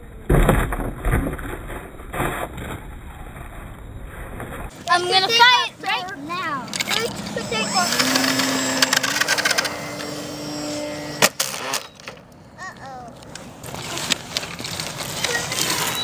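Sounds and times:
model plane motor and propeller: 6.6 - 12.2.

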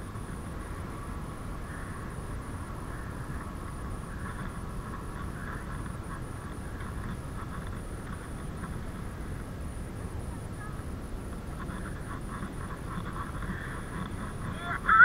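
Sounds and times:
bicycle tyres rumbling: 0.0 - 15.0
wind on microphone: 0.0 - 15.0
bicycle rattling: 3.3 - 9.5, 11.3 - 15.0.

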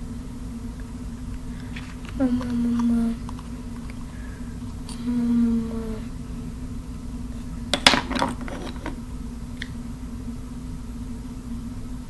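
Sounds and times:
small hard objects clattering: 7.7 - 9.0.

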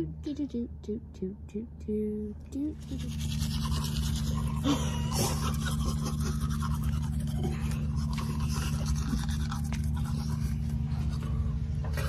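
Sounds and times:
steady low hum: 0.0 - 12.0
teeth brushing scrubbing: 2.8 - 11.4.

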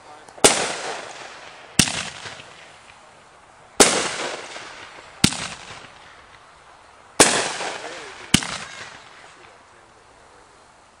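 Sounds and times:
fireworks bangs with echo: 0.4 - 3.1, 3.8 - 6.4, 7.2 - 9.6.

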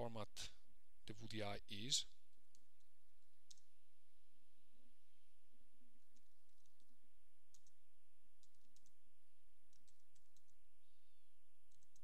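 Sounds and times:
computer keyboard keys clicking: 6.1 - 6.9, 7.5 - 7.8, 8.4 - 9.0, 9.7 - 10.6, 11.7 - 12.0.

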